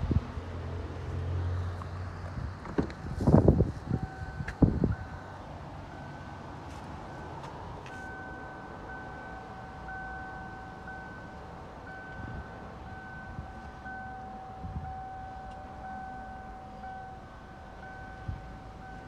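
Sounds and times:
car warning chime: 3.9s - 19.0s.

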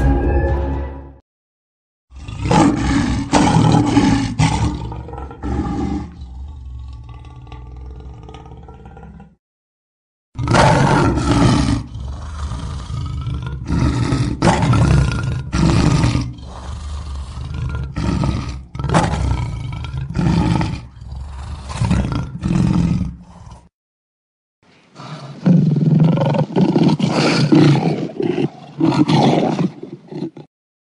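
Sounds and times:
lion roaring: 2.1s - 9.4s, 10.4s - 23.7s, 25.0s - 30.5s.

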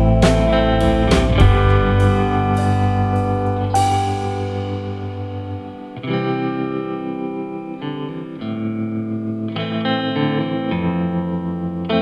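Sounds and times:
instrumental music with held chords: 0.0s - 12.0s.

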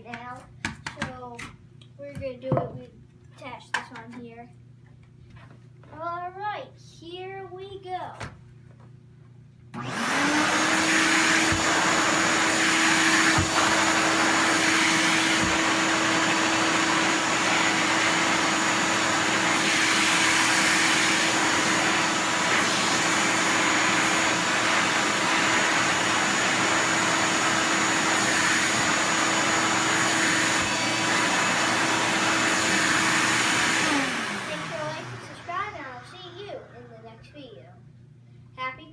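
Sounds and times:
shop vacuum running: 9.7s - 37.5s
vacuum nozzle pushed over carpet: 9.8s - 35.4s.

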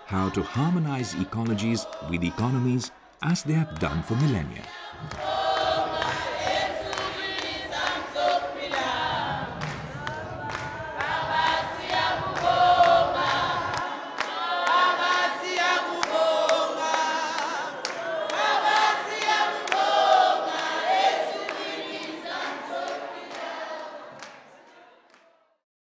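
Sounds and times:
choir singing: 0.0s - 25.5s.

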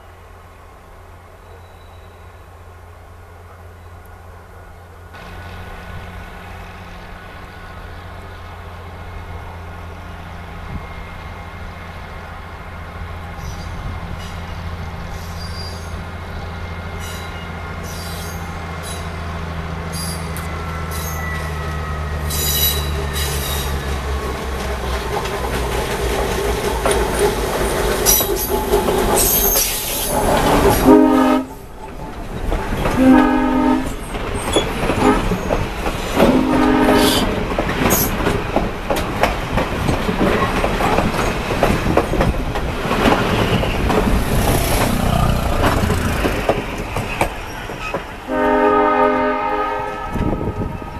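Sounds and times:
diesel locomotive engine: 0.0s - 50.9s
train wheels squealing and clacking: 1.4s - 2.5s, 13.2s - 33.2s, 33.8s - 48.3s
train horn blasts: 30.7s - 31.6s, 32.9s - 34.0s, 35.0s - 35.4s, 36.2s - 37.4s, 48.3s - 50.9s.

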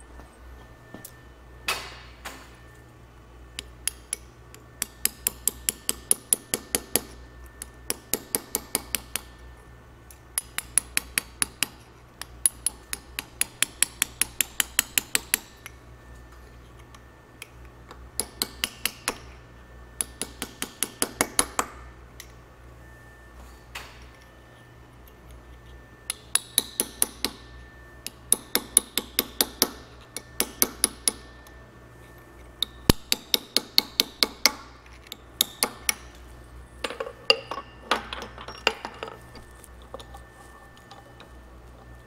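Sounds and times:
hammer tapping chisel on steel: 3.6s - 9.3s, 10.4s - 15.8s, 16.9s - 19.3s, 20.0s - 22.4s, 26.1s - 31.6s, 32.6s - 36.2s, 36.8s - 39.1s.

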